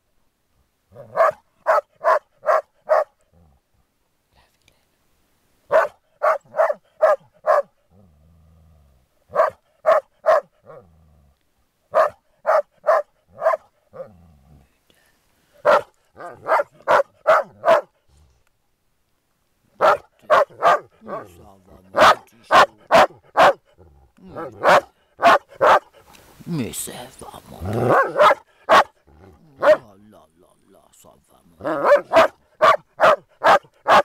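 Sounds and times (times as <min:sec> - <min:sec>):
dogs barking: 0:01.0 - 0:03.2, 0:05.7 - 0:07.7, 0:09.3 - 0:10.8, 0:11.9 - 0:14.1, 0:15.6 - 0:18.0, 0:19.8 - 0:26.0, 0:27.6 - 0:29.9, 0:31.6 - 0:34.0
dog growling: 0:03.2 - 0:03.6, 0:07.8 - 0:09.5, 0:10.3 - 0:11.4, 0:12.9 - 0:14.8, 0:19.8 - 0:25.8, 0:27.2 - 0:29.9, 0:31.5 - 0:32.4.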